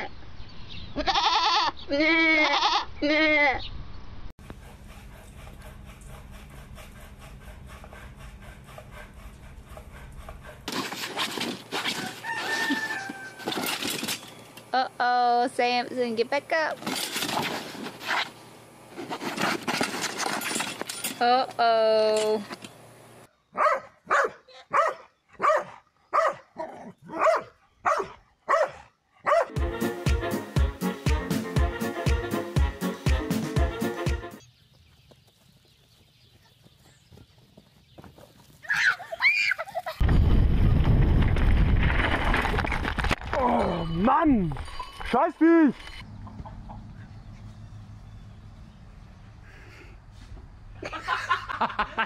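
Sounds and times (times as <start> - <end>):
drawn-out animal call: 1.0 - 3.6, 11.8 - 13.8
dog barking: 23.6 - 29.6
music with steady beat: 29.5 - 34.4.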